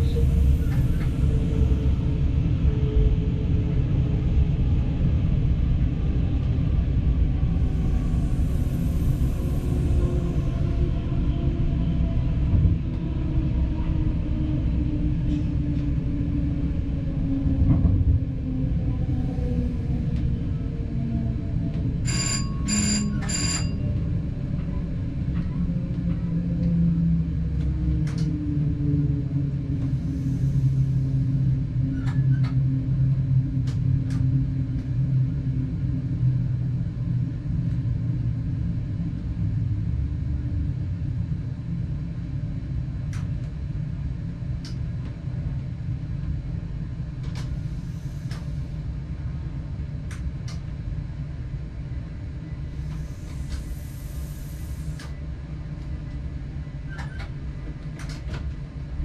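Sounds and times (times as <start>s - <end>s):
train drive rumbling: 0.0s - 59.0s.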